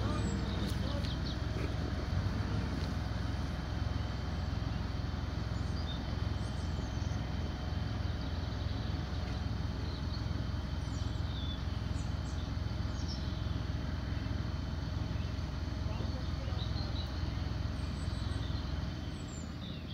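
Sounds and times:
bird chirps: 0:08.0 - 0:14.3, 0:16.0 - 0:19.9.

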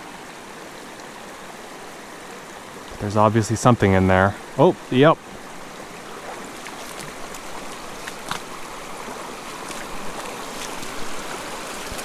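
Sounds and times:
creek running: 0:00.0 - 0:12.0
fish splashing: 0:06.1 - 0:12.0.

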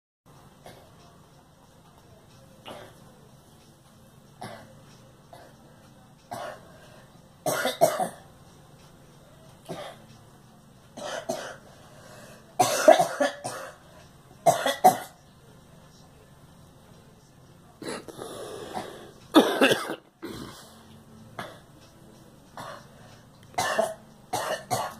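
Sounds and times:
woman coughing: 0:07.5 - 0:08.2, 0:12.6 - 0:13.8, 0:18.8 - 0:20.6, 0:23.6 - 0:24.9.

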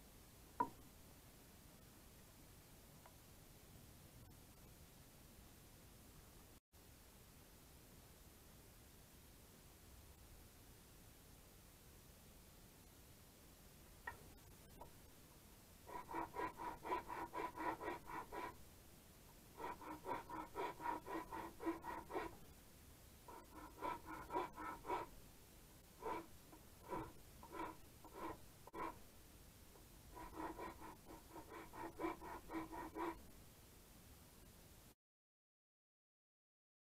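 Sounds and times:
walking stick rubbed back and forth: 0:15.8 - 0:18.7, 0:19.5 - 0:22.5, 0:23.3 - 0:25.2, 0:25.9 - 0:29.1, 0:30.1 - 0:33.2.

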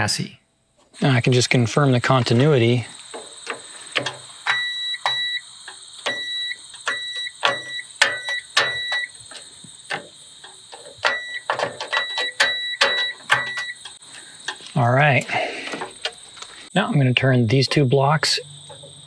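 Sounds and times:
continuity tester beeping: 0:01.0 - 0:14.0.

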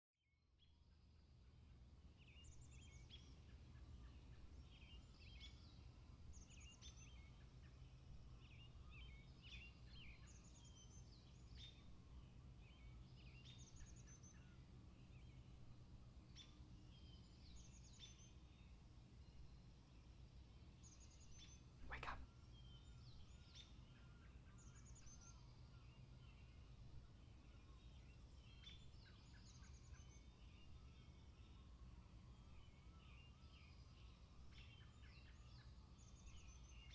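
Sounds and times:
birds chirping: 0:20.6 - 0:31.7.

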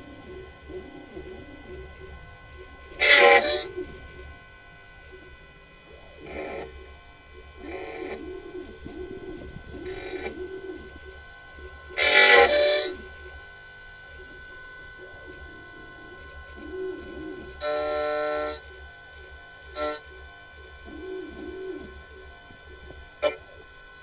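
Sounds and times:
key cutting burst: 0:00.0 - 0:13.5
key-cutting machine motor: 0:00.0 - 0:24.0.

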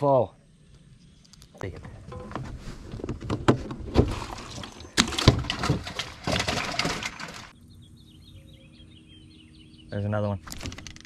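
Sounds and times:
water sloshing in a cooler: 0:02.9 - 0:07.5
faint bird chirps: 0:07.5 - 0:10.4.

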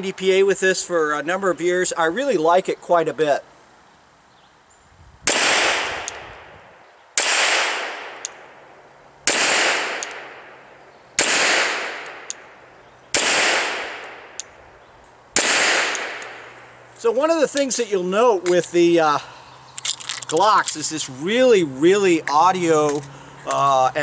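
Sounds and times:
pistol shots with echo: 0:05.3 - 0:06.2, 0:07.2 - 0:08.6, 0:09.2 - 0:10.6, 0:11.2 - 0:12.4, 0:13.1 - 0:14.4, 0:15.4 - 0:16.4.

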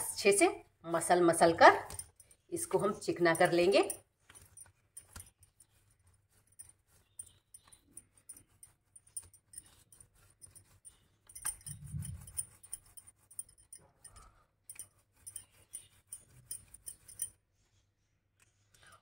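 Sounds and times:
hands kneading dough: 0:00.1 - 0:17.8
finger rings clinking: 0:01.8 - 0:05.8, 0:06.4 - 0:17.4.

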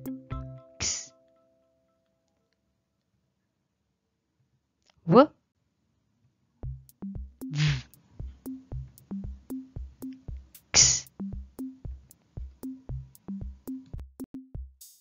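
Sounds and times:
synth bass notes: 0:06.6 - 0:07.9
drum machine beat: 0:06.6 - 0:15.0.

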